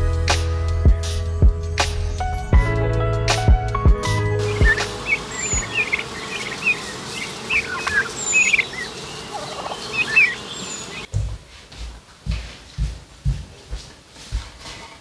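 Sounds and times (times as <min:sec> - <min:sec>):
lower bird call: 0:04.0 - 0:11.1
turkeys peeping chirps: 0:04.0 - 0:11.1.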